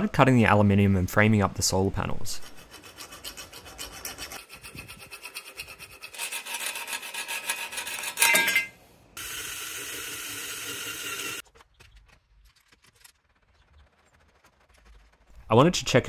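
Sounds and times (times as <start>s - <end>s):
hacksaw cutting metal: 2.5s - 8.7s
cordless drill boring through metal: 9.2s - 11.4s.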